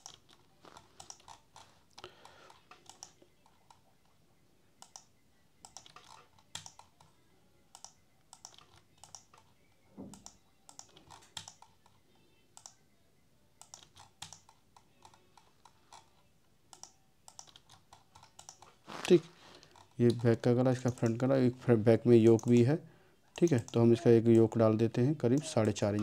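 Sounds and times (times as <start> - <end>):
mouse and keyboard clicking: 0.0 - 3.8, 4.8 - 7.1, 7.7 - 12.0, 13.6 - 18.8, 19.6 - 21.3, 22.3 - 22.6.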